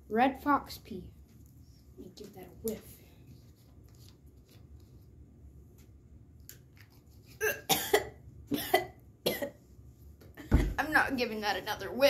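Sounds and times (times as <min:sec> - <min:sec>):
boy coughing: 0:07.4 - 0:09.6.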